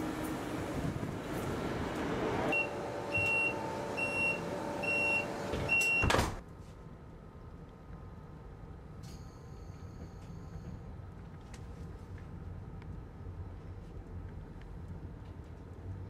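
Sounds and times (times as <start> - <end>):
sliding door shutting with thud: 0.2 - 6.4.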